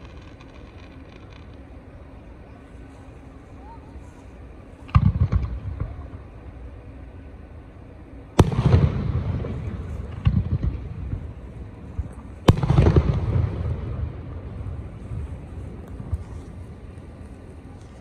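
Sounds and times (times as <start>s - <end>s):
fireworks booms with echo: 4.9s - 6.0s, 8.4s - 16.3s.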